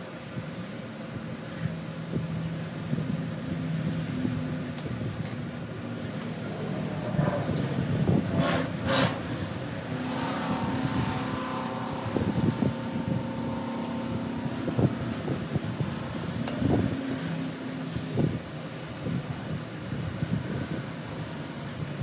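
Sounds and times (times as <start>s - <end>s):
steady hum: 0.0s - 22.0s
metal parts clicking and rattling: 5.2s - 9.2s, 9.9s - 11.9s, 17.9s - 18.5s.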